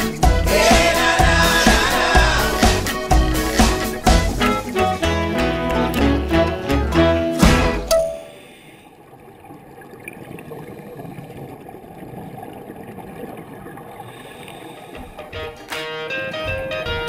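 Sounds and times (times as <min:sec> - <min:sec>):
muffled underwater rush: 0:08.8 - 0:15.4
regulator bubbles: 0:08.9 - 0:15.5.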